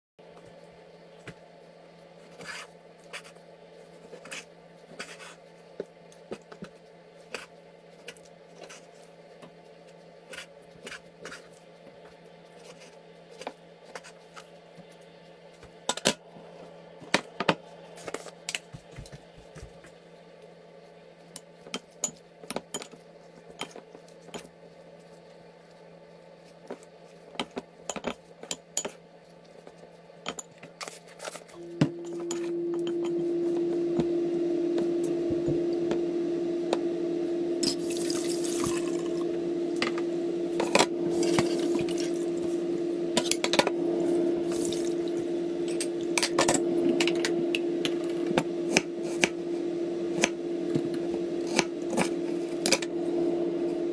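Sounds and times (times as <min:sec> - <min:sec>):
steady low hum: 0:31.5 - 0:53.9.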